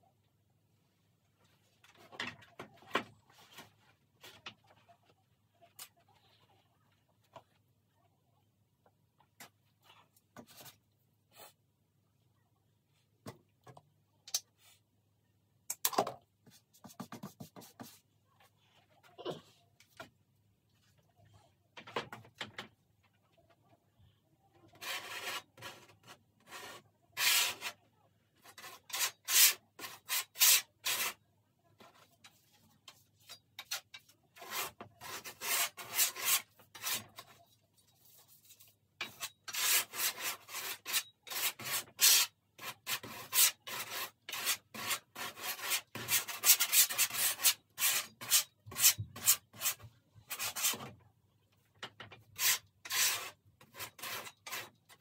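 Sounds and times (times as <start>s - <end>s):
painting knife scraping canvas: 24.7s - 31.2s, 31.8s - 50.9s, 52.1s - 55.0s.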